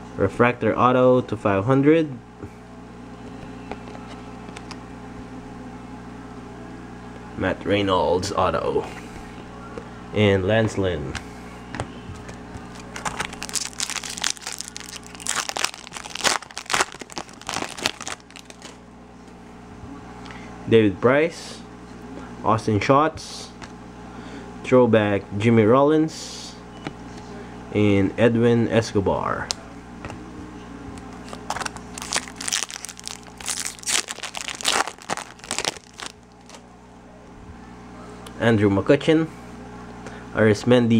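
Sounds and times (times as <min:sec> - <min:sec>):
foil wrapper crinkling: 0:12.6 - 0:18.8, 0:31.2 - 0:36.6.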